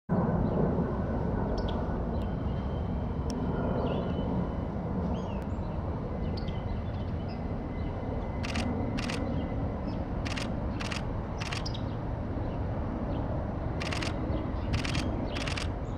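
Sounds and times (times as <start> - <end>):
camera shutter clicks: 8.4 - 9.2, 10.3 - 11.7, 13.8 - 14.2, 14.8 - 15.7
faint high bird chirps: 14.7 - 15.7.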